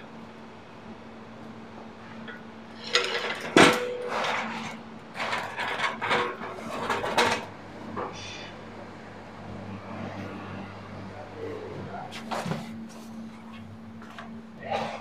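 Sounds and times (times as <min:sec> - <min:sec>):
crates and hand truck clattering: 0:02.8 - 0:07.5.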